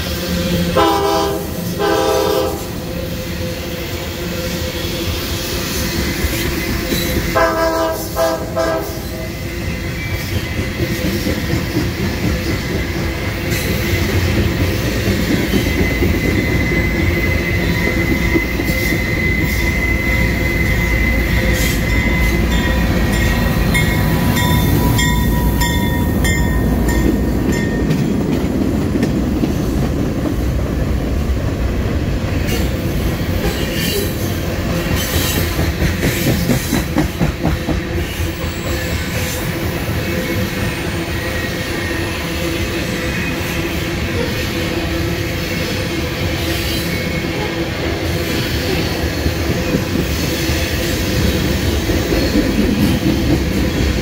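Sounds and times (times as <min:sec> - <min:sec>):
diesel locomotive passing: 0:00.0 - 0:54.0
train wheels rumbling on rails: 0:00.0 - 0:54.0
train horn chord: 0:00.7 - 0:02.9, 0:07.3 - 0:09.4
wheel squeal: 0:14.8 - 0:26.5.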